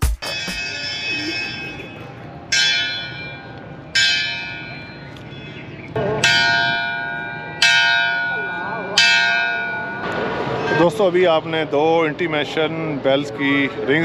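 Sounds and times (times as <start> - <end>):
station bell ringing: 0.1 - 11.1.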